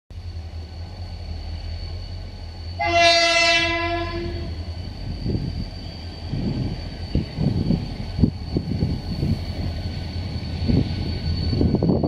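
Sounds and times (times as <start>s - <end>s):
train rumbling: 0.1s - 12.0s
train horn blast: 2.8s - 4.6s.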